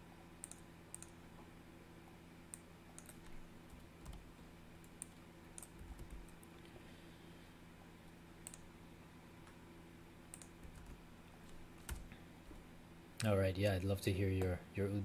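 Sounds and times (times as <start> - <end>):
steady low hum: 0.0 - 15.0
keyboard and mouse clicking: 0.4 - 1.2, 2.5 - 4.2, 4.8 - 6.5, 8.4 - 8.7, 10.3 - 12.1.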